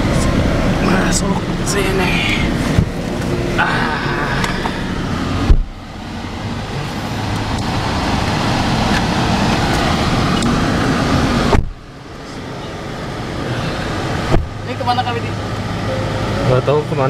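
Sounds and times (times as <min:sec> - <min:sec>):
traffic rumble: 0:00.0 - 0:17.0
sharp thump: 0:05.4 - 0:05.8, 0:11.5 - 0:11.8, 0:14.3 - 0:14.6.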